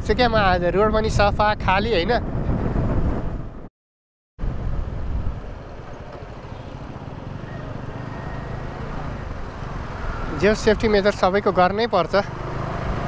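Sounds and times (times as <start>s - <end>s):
vehicle engine and road noise: 4.4s - 13.0s.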